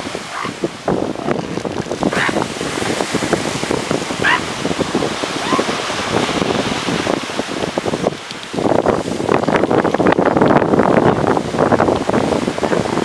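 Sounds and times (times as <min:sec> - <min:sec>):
surf: 0:00.0 - 0:13.0
wind: 0:00.0 - 0:13.0
high animal calls: 0:00.3 - 0:00.6, 0:04.2 - 0:04.4.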